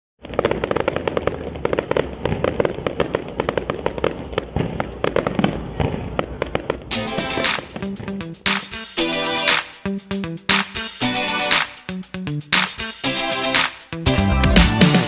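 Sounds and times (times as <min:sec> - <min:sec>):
fireworks bangs and crackling: 0:00.2 - 0:11.8.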